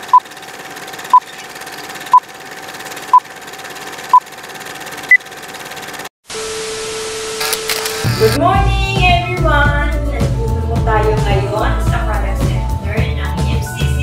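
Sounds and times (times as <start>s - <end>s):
film projector running: 0.0s - 6.1s, 7.4s - 8.4s
tv static hiss: 6.4s - 8.4s.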